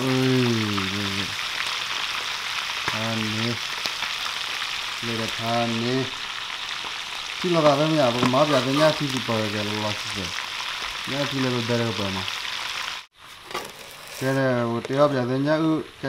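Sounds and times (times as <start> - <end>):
man speaking: 0.0 - 1.4, 2.9 - 3.6, 5.0 - 6.1, 7.4 - 10.4, 11.1 - 12.3, 14.2 - 16.0
fish sizzling in hot oil: 0.0 - 13.3.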